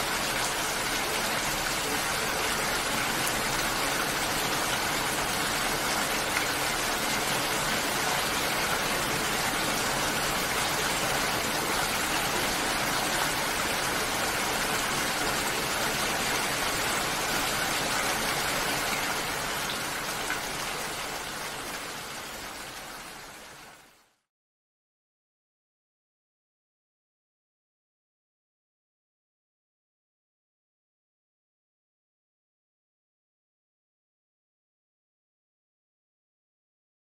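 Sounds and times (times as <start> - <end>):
steady rain: 0.0 - 24.2.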